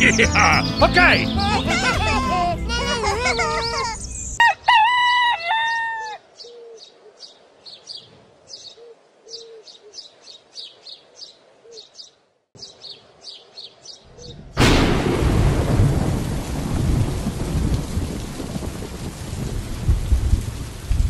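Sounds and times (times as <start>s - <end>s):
small birds chirping: 0.0s - 4.4s, 6.0s - 14.6s
rooster crowing: 4.4s - 6.2s.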